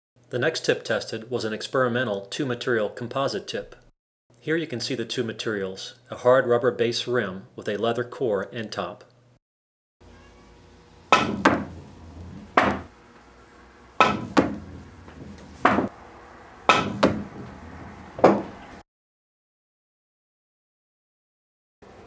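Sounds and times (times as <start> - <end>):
ball hitting cushion: 11.1 - 11.8, 12.4 - 12.9, 14.0 - 15.9, 16.7 - 17.6, 18.2 - 18.6
billiard ball knock: 11.1 - 12.9, 14.0 - 15.9, 16.7 - 18.6
cue tip striking ball: 11.1 - 12.9, 14.0 - 15.9, 16.6 - 18.7.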